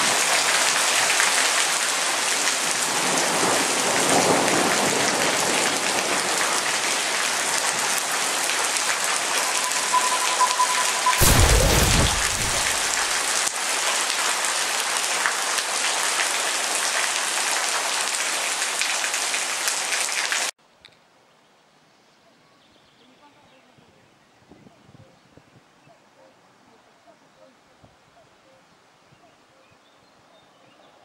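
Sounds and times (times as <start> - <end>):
steady rain hiss: 0.0 - 10.3, 11.0 - 20.5
brief high tone: 9.2 - 13.2.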